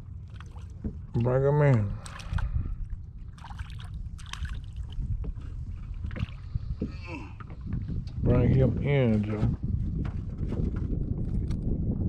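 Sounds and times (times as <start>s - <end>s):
low wind rumble on microphone: 0.0s - 12.0s
fish splashing at water surface: 0.2s - 2.7s, 3.3s - 5.0s.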